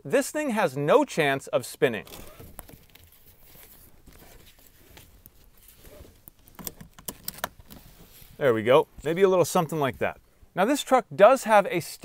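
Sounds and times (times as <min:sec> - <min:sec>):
seat belt webbing rustling: 0:02.0 - 0:08.4.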